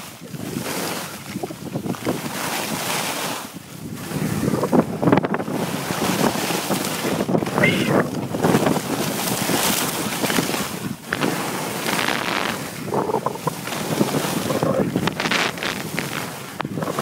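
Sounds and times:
wind buffeting microphone: 0.0 - 17.0
skis scraping over snow: 8.4 - 17.0.

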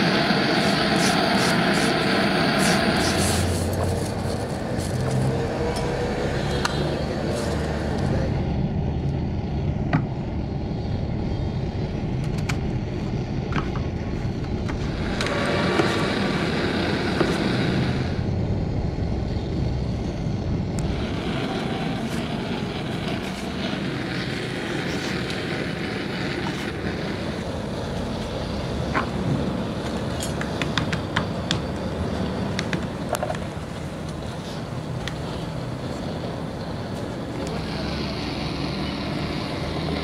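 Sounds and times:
hissing: 0.0 - 13.4, 14.0 - 40.0
low rumble: 2.4 - 30.7.

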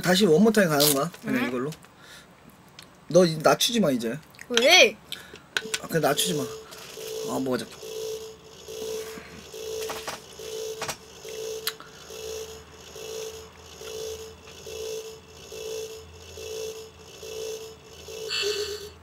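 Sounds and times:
toy game short beeps: 5.6 - 11.8.

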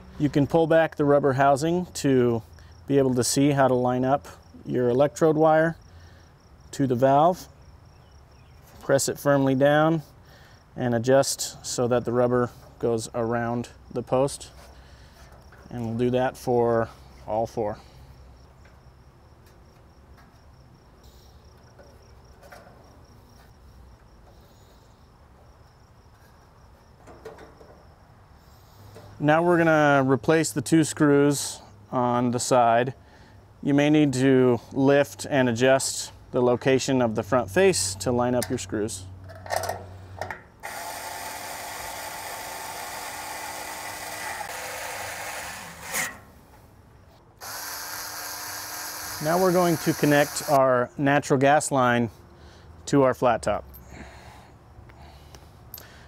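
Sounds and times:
electric screwdriver whirring: 40.6 - 46.1, 47.4 - 50.6.

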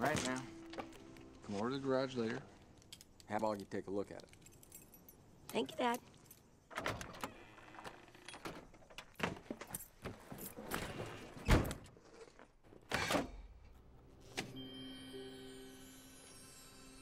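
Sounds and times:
keys jangling: 4.2 - 6.6.

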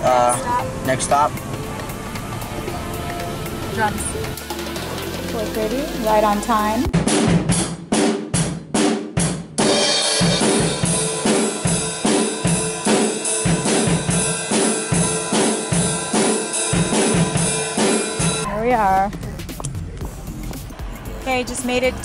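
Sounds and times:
drum kit playing: 0.0 - 22.0
cymbals ringing: 9.7 - 18.5.

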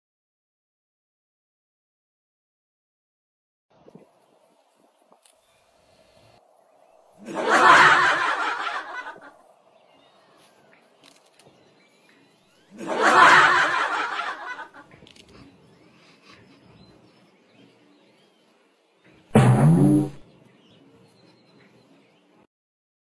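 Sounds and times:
bursts of laughter: 7.2 - 9.4, 12.7 - 14.9.

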